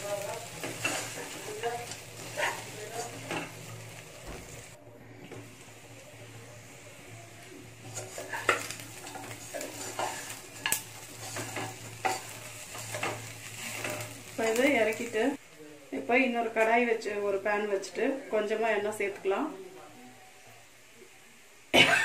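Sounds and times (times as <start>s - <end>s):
spoon scraping a pan: 0.0s - 3.9s, 7.8s - 14.6s
chicken sizzling: 0.0s - 22.0s.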